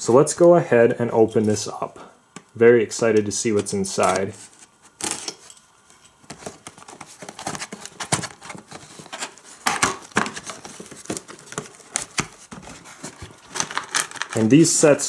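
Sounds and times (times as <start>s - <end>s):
cardboard snapping: 6.4s - 14.4s.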